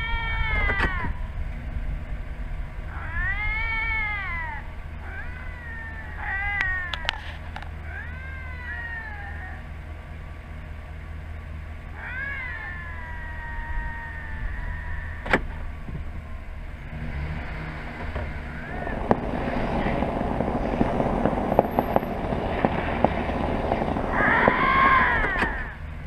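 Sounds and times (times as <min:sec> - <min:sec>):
lynx yowling: 0:00.0 - 0:01.2, 0:02.9 - 0:09.7, 0:11.9 - 0:15.8, 0:18.4 - 0:25.9
vehicle engine idling: 0:00.0 - 0:26.0
rushing noise with clicks: 0:17.0 - 0:25.9.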